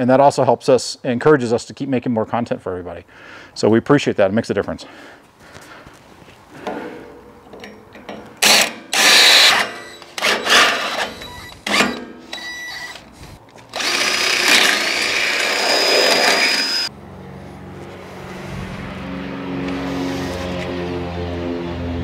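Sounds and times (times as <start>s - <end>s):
cordless drill drilling metal: 8.4s - 16.9s.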